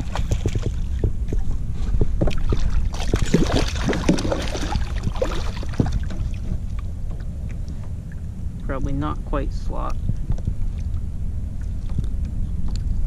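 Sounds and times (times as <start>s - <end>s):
water splashing: 0.0s - 1.4s, 2.2s - 7.8s
wind rumble on microphone: 0.0s - 13.0s.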